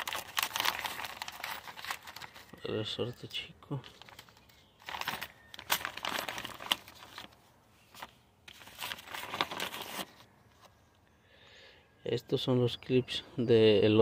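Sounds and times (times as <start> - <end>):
plastic bag crinkling: 0.0 - 2.6, 3.7 - 10.3.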